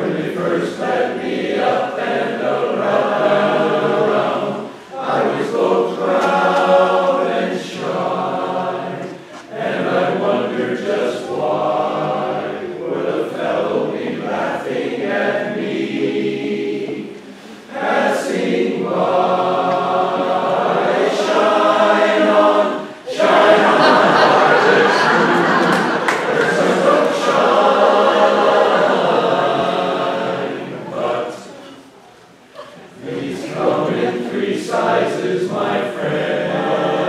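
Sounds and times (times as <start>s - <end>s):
chorus singing a cappella: 0.0s - 37.0s
singers breathing: 4.6s - 5.0s, 17.1s - 17.7s.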